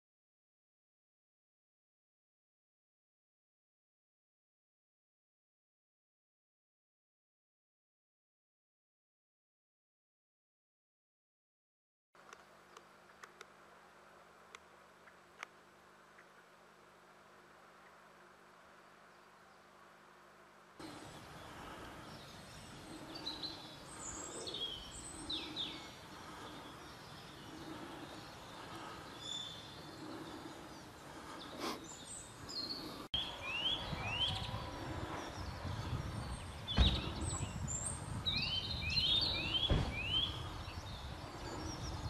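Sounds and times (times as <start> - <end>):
birds chirping and singing: 20.8 - 42.0
thumps: 39.7 - 40.0.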